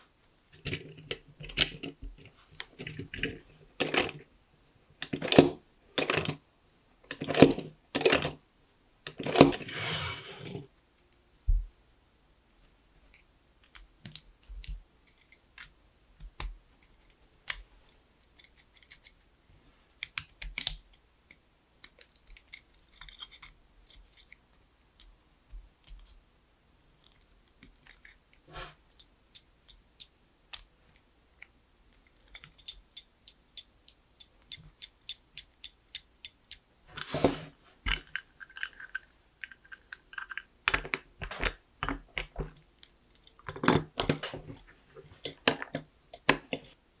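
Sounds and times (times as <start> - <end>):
plastic bricks clicking together: 31.4 - 36.6, 37.9 - 44.4, 45.2 - 46.8
plastic bricks clattering: 37.9 - 42.5.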